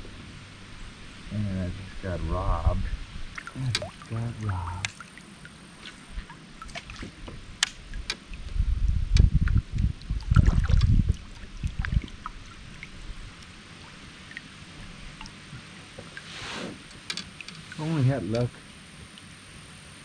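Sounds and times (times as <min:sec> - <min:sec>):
low rumbling: 0:00.0 - 0:18.8
water gurgling against a hull: 0:01.8 - 0:18.7
small clicks and knocks: 0:16.9 - 0:17.7.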